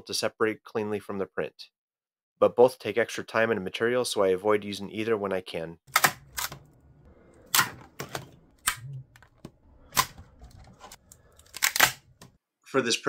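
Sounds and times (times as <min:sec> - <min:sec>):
plastic parts cracking and clicking: 0:05.9 - 0:12.4.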